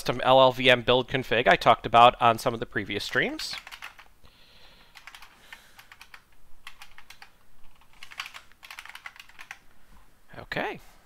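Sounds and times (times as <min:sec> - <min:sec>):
typing on computer keyboard: 0:03.0 - 0:04.1, 0:04.8 - 0:09.6.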